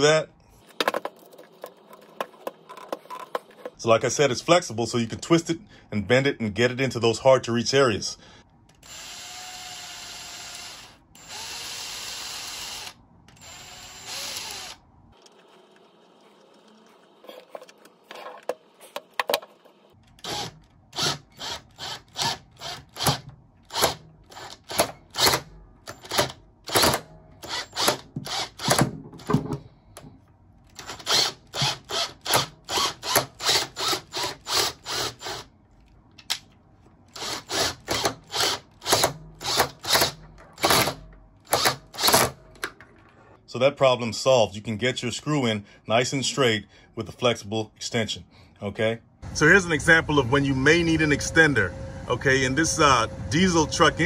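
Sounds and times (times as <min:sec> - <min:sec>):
cordless drill motor bursts: 0:08.8 - 0:14.8, 0:20.2 - 0:28.7, 0:30.8 - 0:35.5, 0:37.1 - 0:42.3.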